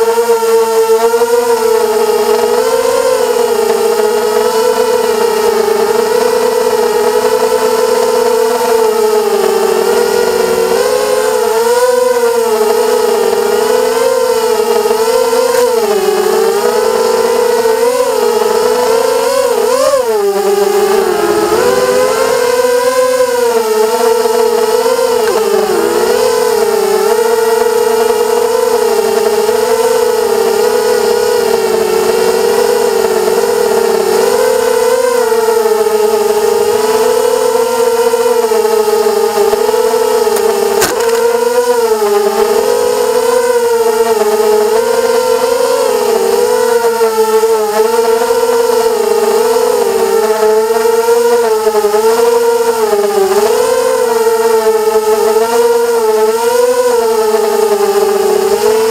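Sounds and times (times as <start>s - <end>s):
quadcopter motors whining: 0.0s - 58.9s.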